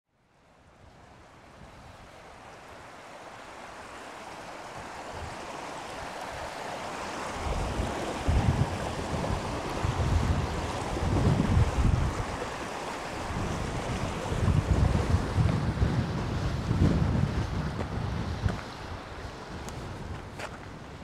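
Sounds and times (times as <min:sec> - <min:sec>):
wind: 0:00.1 - 0:21.0
rushing water: 0:00.2 - 0:21.0
wind buffeting microphone: 0:07.3 - 0:21.0.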